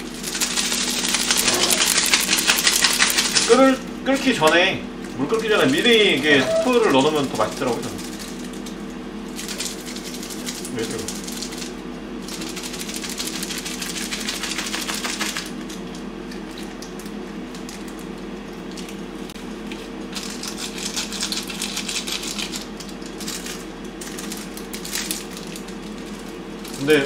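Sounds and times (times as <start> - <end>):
steady low hum: 0.0 - 27.0
plastic sachets crinkling: 20.2 - 27.0.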